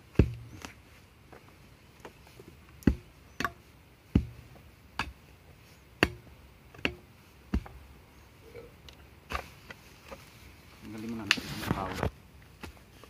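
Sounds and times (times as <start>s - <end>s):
iron bar striking damp soil: 0.0s - 0.8s, 2.7s - 10.2s, 10.9s - 13.0s.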